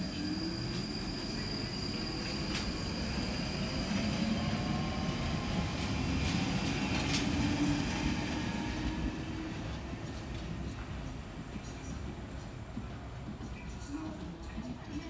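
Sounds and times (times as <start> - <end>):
high wheel squeal: 0.0 - 5.0
wheels rumbling on rail: 0.0 - 15.0.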